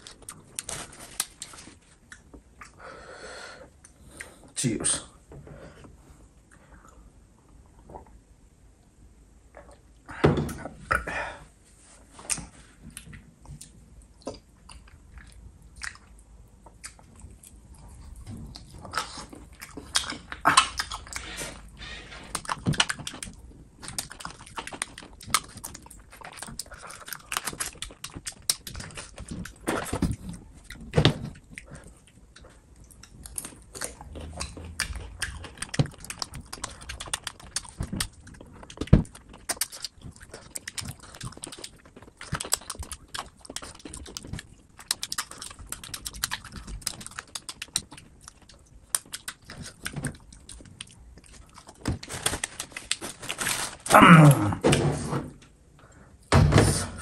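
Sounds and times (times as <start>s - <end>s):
person chewing food: 0.0s - 2.9s, 12.0s - 54.4s
mouth clicks and smacks: 22.3s - 53.1s.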